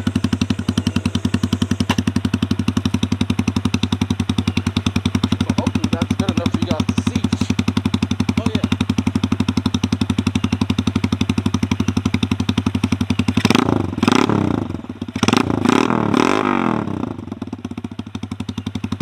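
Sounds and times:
motorcycle engine idling: 0.0s - 19.0s
motorcycle throttle revving: 0.0s - 19.0s.

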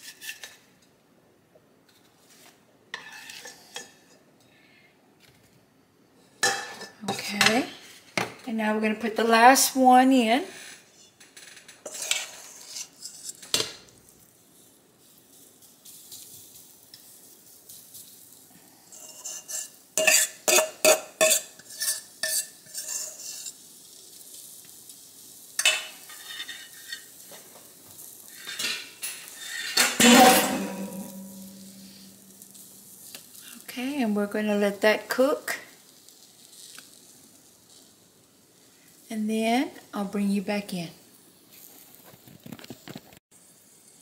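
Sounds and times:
utensils scraping a skillet: 0.0s - 0.7s, 1.9s - 4.2s, 9.7s - 13.9s, 15.1s - 24.7s, 25.5s - 33.6s
faint sizzle of frying: 0.0s - 44.0s.

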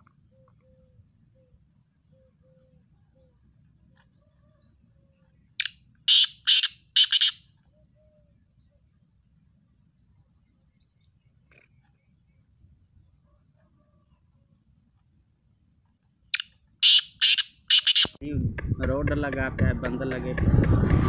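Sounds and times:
bird harsh grating calls: 5.6s - 7.5s, 16.4s - 18.1s.

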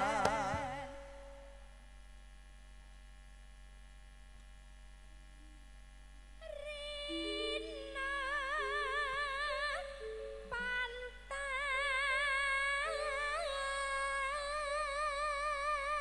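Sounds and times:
woman singing with vibrato: 0.0s - 1.6s, 6.4s - 16.0s
faint steady hum: 0.0s - 16.0s
keyboard notes: 6.8s - 14.6s.

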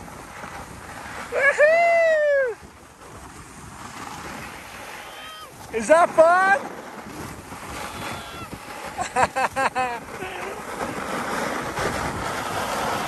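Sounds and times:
skis scraping over snow: 0.0s - 13.0s
wind on microphone: 0.0s - 13.0s.

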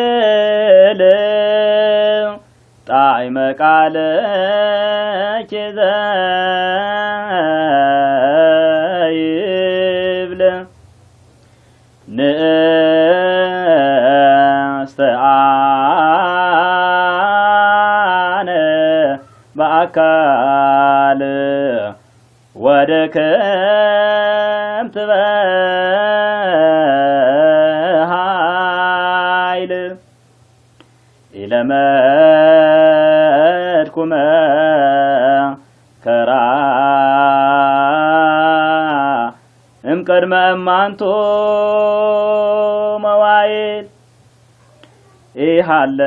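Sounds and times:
man chanting a hymn: 0.0s - 10.7s, 12.1s - 22.0s, 22.6s - 30.0s, 31.3s - 43.9s, 45.4s - 46.0s
short breath: 11.4s - 12.0s, 19.2s - 19.5s, 30.8s - 31.3s, 35.6s - 36.0s.

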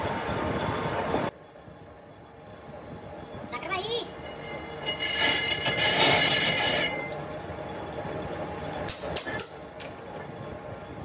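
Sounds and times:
lathe tool squealing on metal: 4.0s - 7.5s.

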